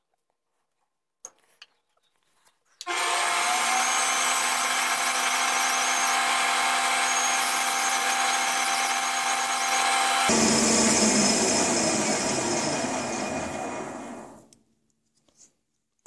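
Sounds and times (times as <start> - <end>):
lathe motor whining: 2.8 - 14.5.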